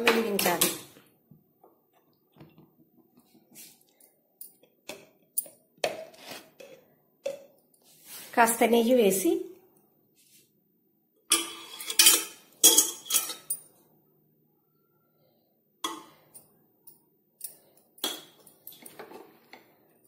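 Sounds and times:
metal spoon clinking on metal pot: 11.3 - 13.7.

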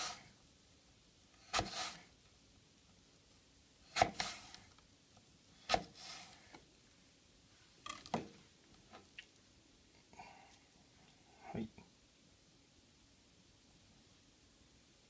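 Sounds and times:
knife slicing through apple: 1.4 - 2.1, 3.9 - 4.6, 5.6 - 6.4.

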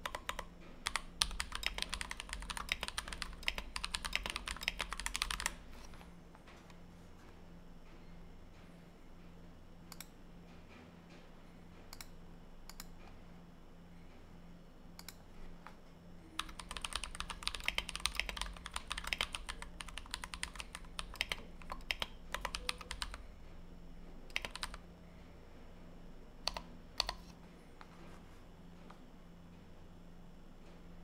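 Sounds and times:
fast typing on mechanical keyboard: 0.0 - 5.6, 16.4 - 23.2, 24.3 - 24.8, 26.5 - 27.2.

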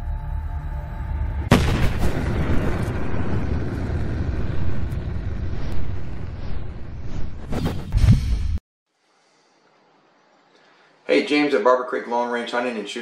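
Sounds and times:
sudden boom: 1.4 - 8.6
sharp impact: 1.5 - 8.6
rumbling rushing whoosh: 1.6 - 8.6.

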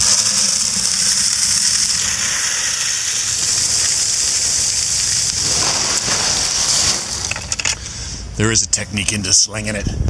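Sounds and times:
grain pouring into plastic bucket: 0.0 - 7.8.

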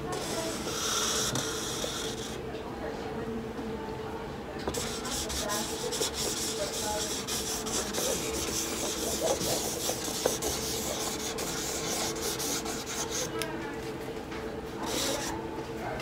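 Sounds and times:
marker scratching on canvas: 0.1 - 2.4, 4.6 - 13.3, 14.8 - 15.3.

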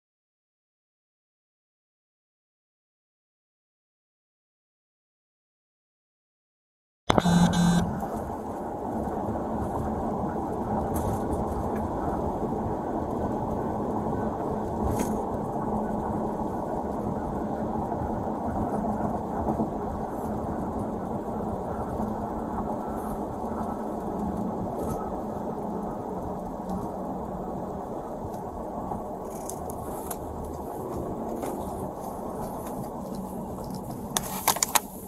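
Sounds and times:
faint hum: 7.1 - 8.4
car road and engine rumble: 7.1 - 35.0.

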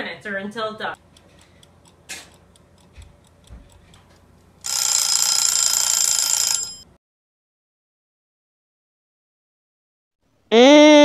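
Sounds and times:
kitchen timer ticking: 1.0 - 5.4
timer bell ringing: 4.7 - 6.8.

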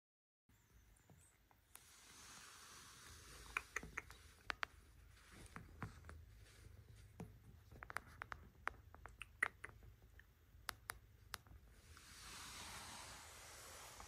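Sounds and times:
soft steady hiss: 0.5 - 14.0
scratches and sharp clicks: 1.5 - 6.2, 7.2 - 11.6.

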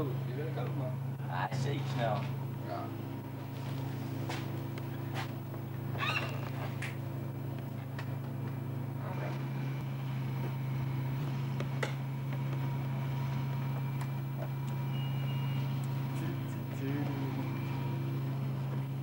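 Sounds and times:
scooter engine idling: 9.8 - 19.0.

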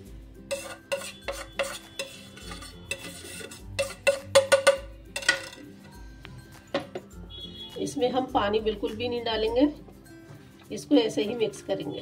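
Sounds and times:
plate clinking on steel bowl: 0.5 - 5.7.

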